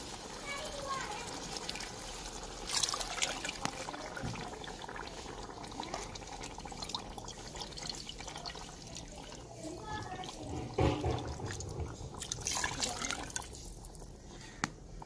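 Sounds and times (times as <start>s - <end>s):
water pouring into a bowl: 0.0s - 14.2s
water splashing into a pot: 0.0s - 14.7s.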